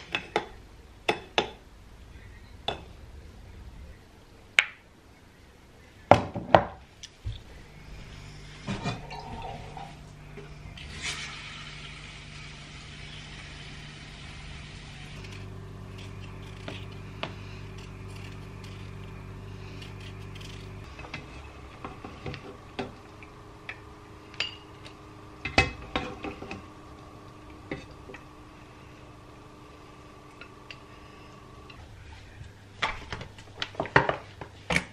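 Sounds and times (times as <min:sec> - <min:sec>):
steady low hum: 0:00.0 - 0:06.1, 0:06.8 - 0:34.5
tap water running: 0:08.7 - 0:19.8, 0:20.7 - 0:31.8.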